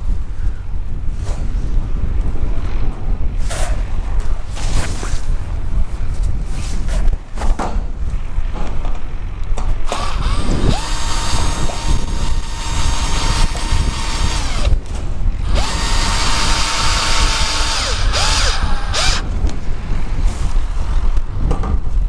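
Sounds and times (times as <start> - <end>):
drill motor whining: 9.9 - 14.8, 15.4 - 19.2.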